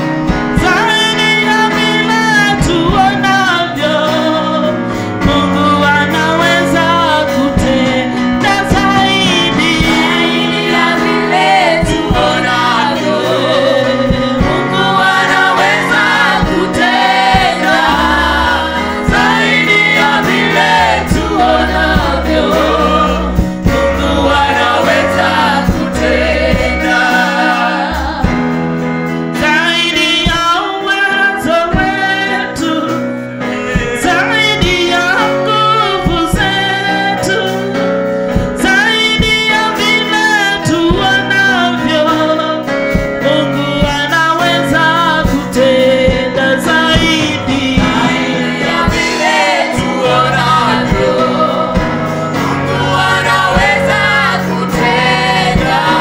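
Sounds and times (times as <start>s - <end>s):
band accompaniment with bass: 0.0s - 56.0s
backing singers: 7.3s - 28.6s, 31.1s - 37.3s, 45.2s - 56.0s.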